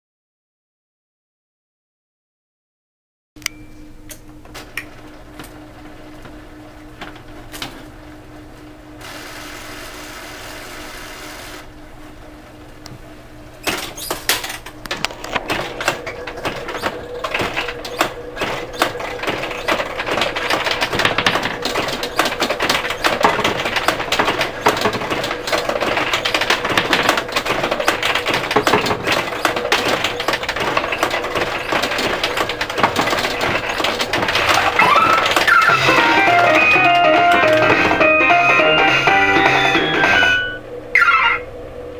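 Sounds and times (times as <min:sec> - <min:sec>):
steel balls clattering through pins: 0:15.4 - 0:40.6.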